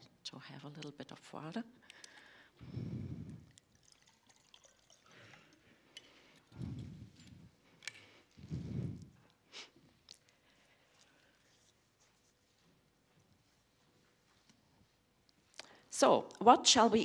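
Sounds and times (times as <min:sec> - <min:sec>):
person drinking: 0:01.9 - 0:10.4
water poured into a glass: 0:03.3 - 0:06.2.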